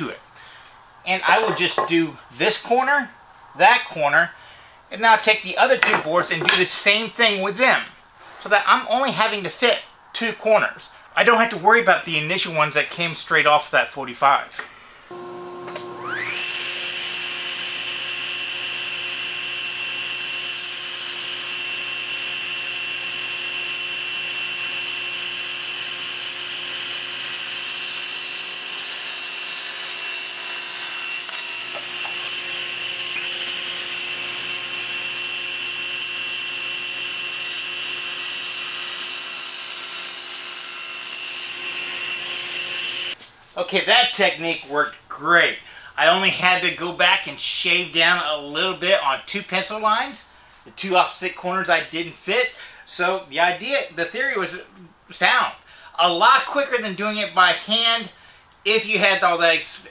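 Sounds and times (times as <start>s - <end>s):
saw cutting boards: 1.1s - 2.8s, 5.3s - 7.4s, 15.1s - 43.3s
table saw motor whine: 15.1s - 43.2s.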